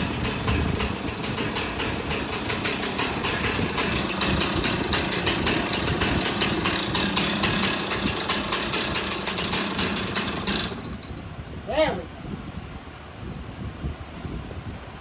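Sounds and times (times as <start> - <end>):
chainsaw engine idling: 0.0 - 11.4.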